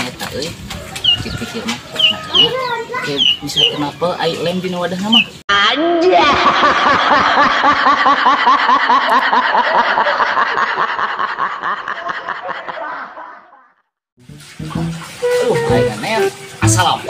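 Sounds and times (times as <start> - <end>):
high-pitched laughter: 6.0 - 13.8.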